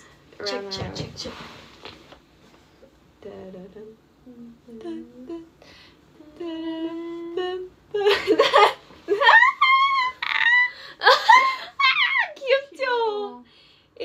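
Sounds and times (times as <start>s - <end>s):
woman humming: 3.2s - 5.6s, 6.2s - 8.3s
women squealing and laughing: 8.6s - 12.4s.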